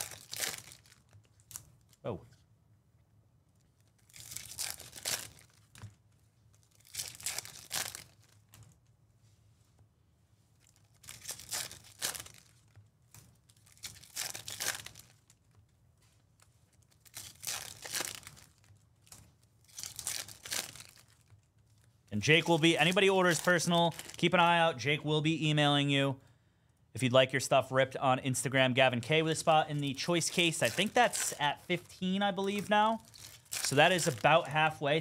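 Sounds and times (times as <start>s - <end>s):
foil wrappers tearing and crinkling: 0.0s - 1.9s, 3.9s - 5.8s, 6.6s - 8.5s, 10.6s - 15.6s, 16.8s - 24.4s, 29.4s - 34.8s.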